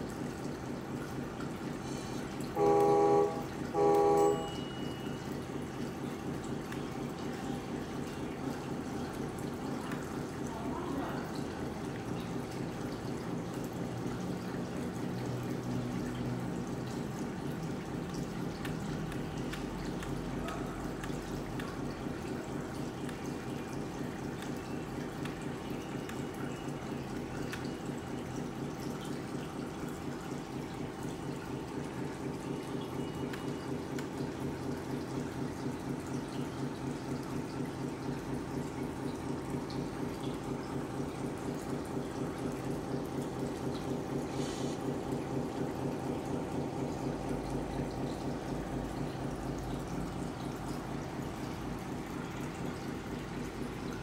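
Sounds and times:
simulated diesel engine idling: 0:02.5 - 0:04.7.

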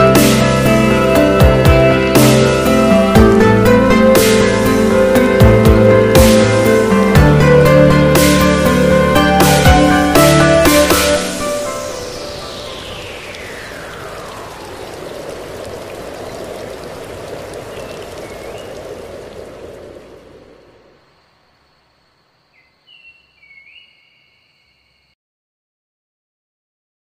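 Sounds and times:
noise wash: 0:00.3 - 0:22.5
electronic tone sliding down: 0:10.9 - 0:15.3.

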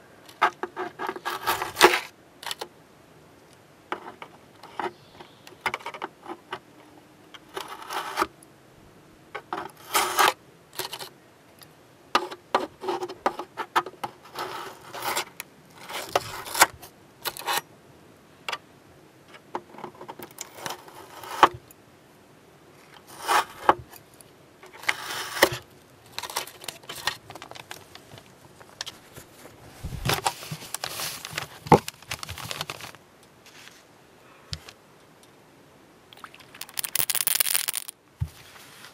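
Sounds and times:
masking tape peeled and crumpled: 0:24.8 - 0:29.2, 0:29.8 - 0:33.8, 0:36.6 - 0:37.9.

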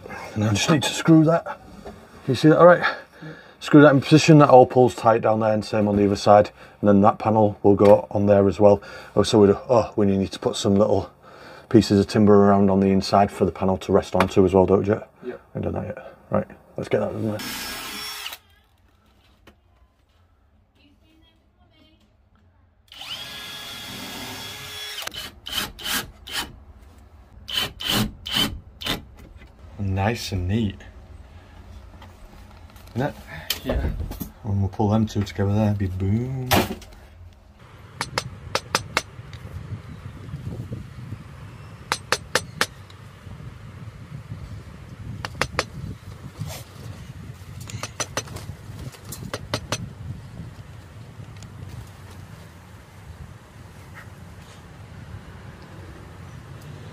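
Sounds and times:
cordless drill whirring: 0:17.4 - 0:18.5, 0:22.9 - 0:26.4
low steady rumble: 0:28.6 - 0:56.6
mallet tapping a chisel: 0:38.0 - 0:39.1, 0:41.9 - 0:42.7, 0:45.2 - 0:45.7, 0:47.8 - 0:48.3, 0:49.3 - 0:49.8.

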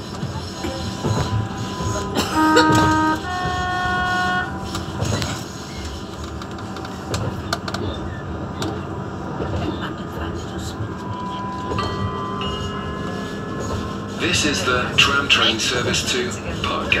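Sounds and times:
wheels running on rails: 0:00.0 - 0:17.0
tram horn two notes: 0:01.6 - 0:04.8
sharp rail clicks: 0:04.3 - 0:07.9.

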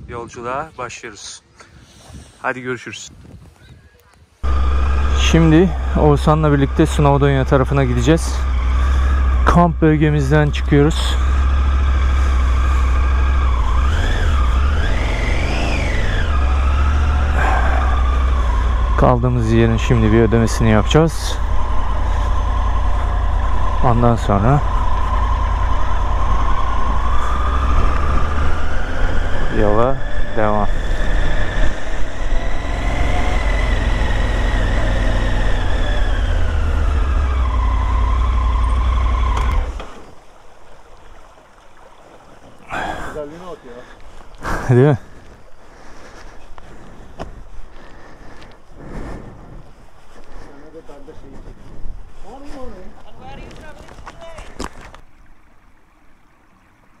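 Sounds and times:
motorcycle engine running: 0:04.4 - 0:40.0.

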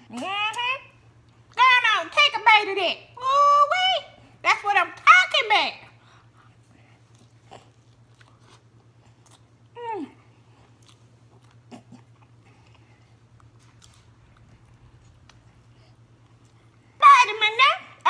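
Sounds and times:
chewing and biting: 0:06.4 - 0:16.8.

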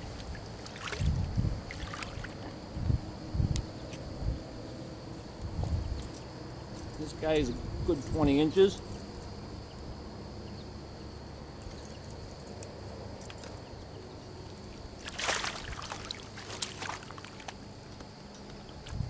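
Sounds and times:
water splashing: 0:01.7 - 0:02.4, 0:15.0 - 0:17.6.

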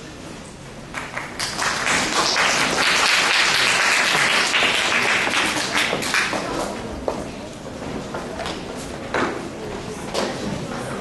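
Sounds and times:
audience applauding: 0:00.9 - 0:06.6.

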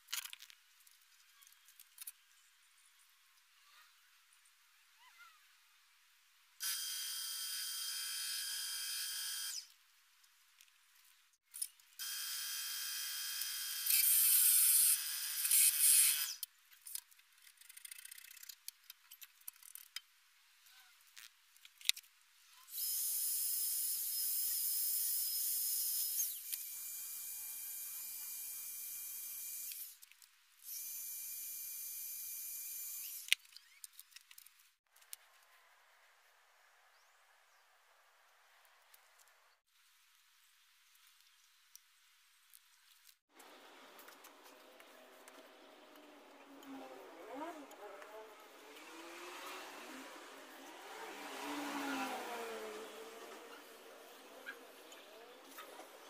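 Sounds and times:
clicks and scrapes: 0:15.5 - 0:22.1.

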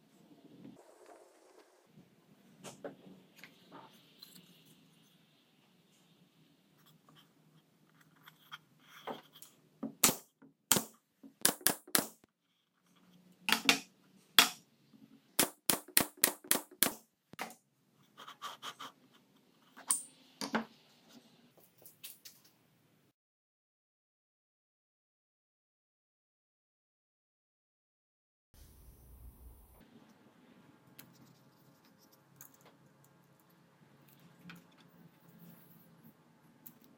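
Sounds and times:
nail gun firing: 0:10.0 - 0:12.2, 0:15.4 - 0:17.0.

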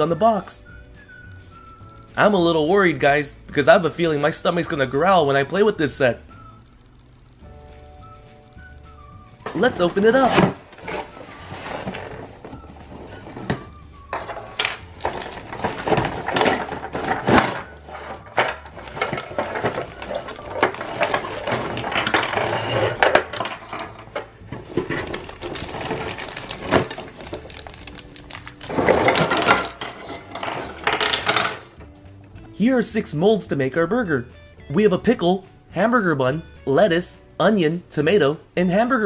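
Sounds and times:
cardboard and packaging rustling: 0:09.4 - 0:31.7
plastic pieces clattering on table: 0:09.5 - 0:31.8.

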